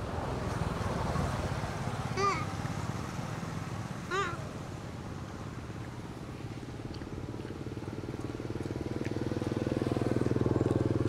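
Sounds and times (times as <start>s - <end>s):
small engine droning: 2.2s - 11.0s.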